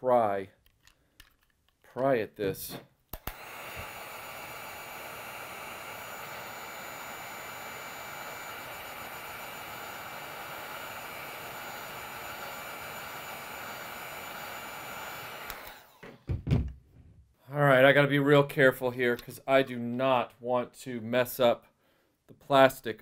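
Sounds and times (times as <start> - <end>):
heat gun blowing: 2.7 - 16.4.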